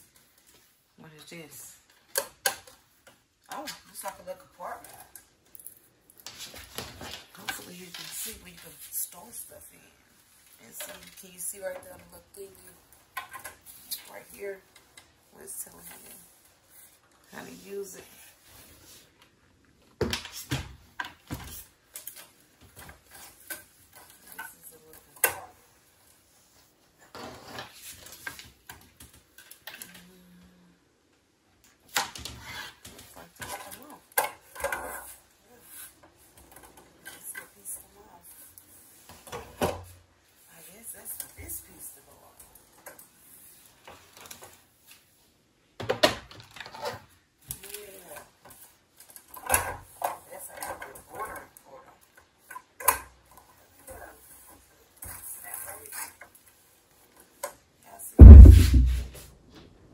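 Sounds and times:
knocks and rattling: 58.2 - 59.2.

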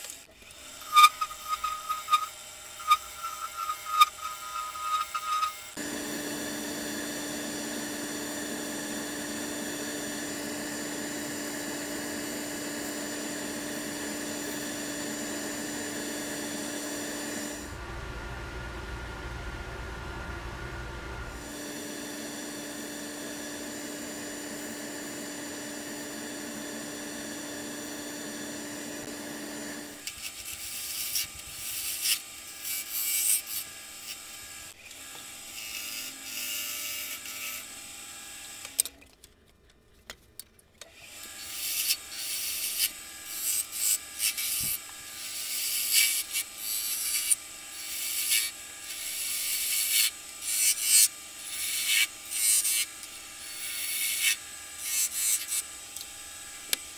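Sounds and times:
turning tool scraping wood: 0.4 - 5.8
wood lathe humming: 0.4 - 37.4
sandpaper on spinning wood: 0.9 - 5.6.

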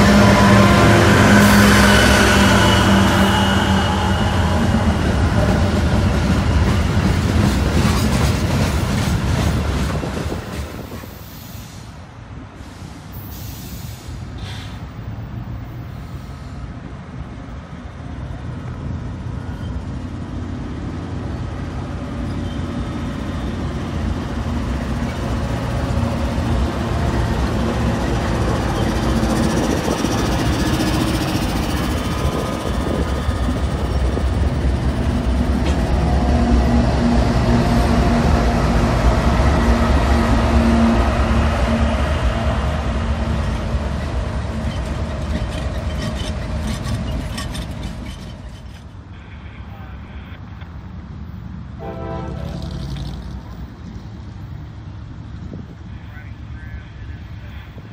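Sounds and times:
diesel locomotive engines droning: 0.0 - 57.9
train wheels clicking over rails: 4.4 - 11.6, 22.6 - 40.3, 41.2 - 49.0.

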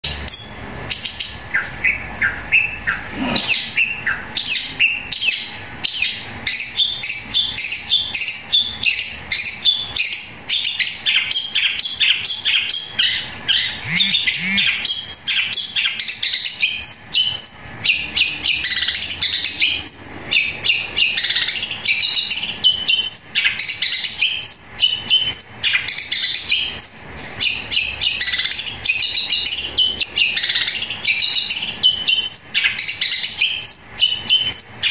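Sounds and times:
bird singing rapid chirps: 0.0 - 34.9.

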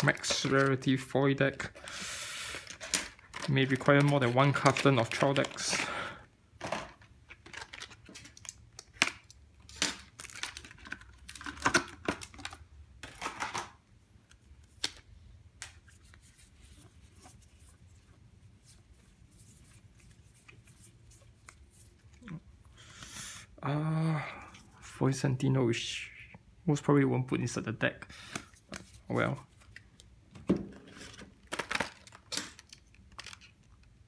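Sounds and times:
cards being handled: 0.0 - 5.9, 6.6 - 22.4, 28.2 - 30.1
plastic wrapping crinkling and tearing: 0.0 - 5.9, 7.2 - 13.7, 30.9 - 34.0.

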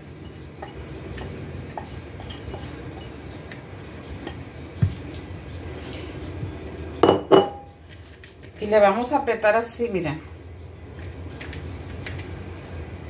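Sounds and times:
bowls clicking and tapping: 0.2 - 5.3, 7.0 - 7.8.

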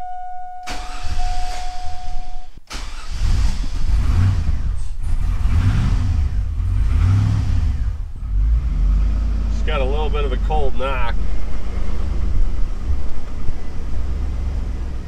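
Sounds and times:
steady electronic tone: 0.0 - 2.6.

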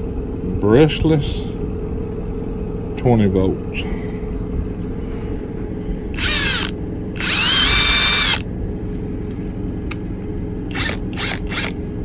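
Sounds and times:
low hum: 0.0 - 12.0
impact wrench motor whining: 6.1 - 8.5, 10.7 - 11.8.

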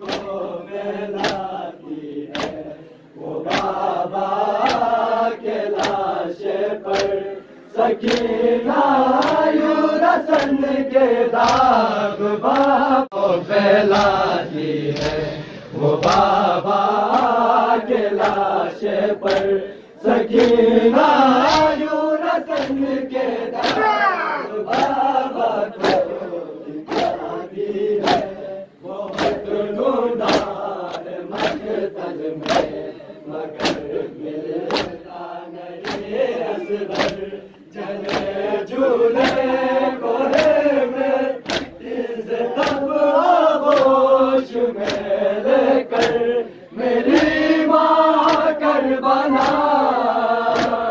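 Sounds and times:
chest-beating slaps: 0.0 - 0.4, 1.2 - 1.5, 2.3 - 2.7, 3.4 - 3.9, 4.6 - 5.0, 5.7 - 6.0, 6.9 - 7.2, 8.0 - 8.4, 9.1 - 9.6, 10.3 - 10.6, 11.4 - 11.8, 14.9 - 15.4, 16.0 - 16.4, 19.2 - 19.5, 20.3 - 20.7, 21.4 - 21.8, 22.5 - 22.8, 23.6 - 25.0, 26.8 - 27.2, 28.0 - 28.3, 29.1 - 29.4, 30.2 - 30.6, 32.4 - 32.8, 33.5 - 33.9, 34.6 - 35.0, 35.8 - 36.2, 36.9 - 37.3, 38.0 - 38.4, 39.2 - 39.5, 41.4 - 41.8, 42.6 - 42.9, 43.6 - 44.0, 44.8 - 45.1, 45.9 - 46.3, 47.0 - 47.5, 48.2 - 48.6, 49.3 - 49.7, 50.5 - 50.9
men chanting in unison: 0.0 - 50.9.

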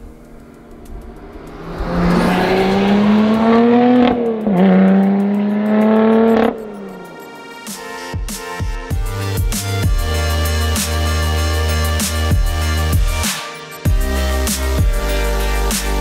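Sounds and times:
car engine accelerating hard: 0.0 - 7.2.

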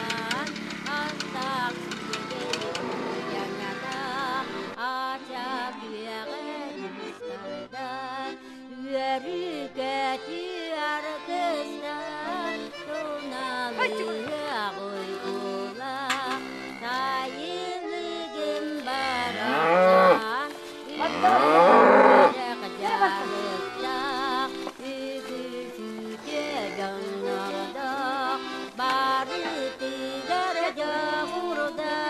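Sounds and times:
background music: 0.0 - 32.0
cow mooing: 2.2 - 4.6, 16.3 - 17.0, 19.0 - 20.3, 20.9 - 22.5.

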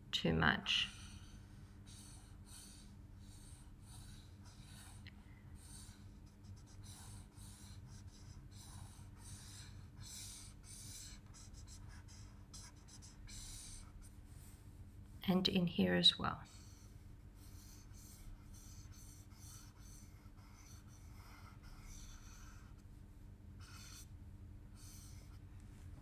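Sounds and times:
marker scratching on paper: 0.9 - 5.0, 5.6 - 14.5, 16.4 - 22.8, 23.6 - 24.1, 24.8 - 25.4.

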